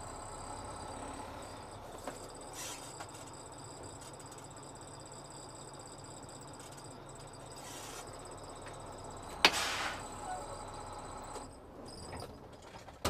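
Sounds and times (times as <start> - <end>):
insects chirping: 0.2 - 9.3.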